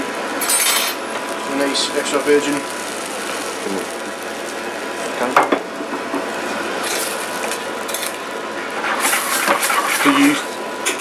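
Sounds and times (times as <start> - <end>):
sauce sizzling in pan: 0.0 - 11.0.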